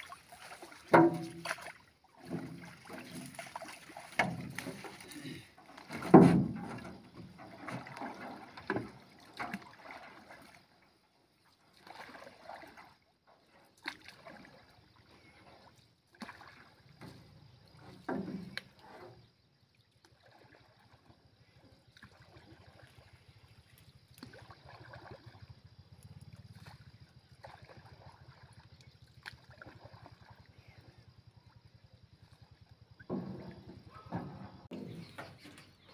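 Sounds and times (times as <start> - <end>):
water splashing and sloshing: 0.0 - 35.9
wooden knocks from boat: 0.9 - 1.6, 4.1 - 5.1, 5.8 - 9.7, 17.0 - 18.8, 33.0 - 35.9.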